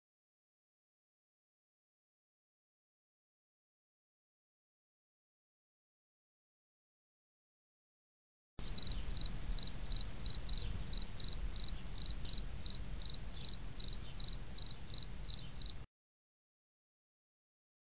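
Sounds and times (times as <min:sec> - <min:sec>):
insect chirping: 0:08.6 - 0:15.8.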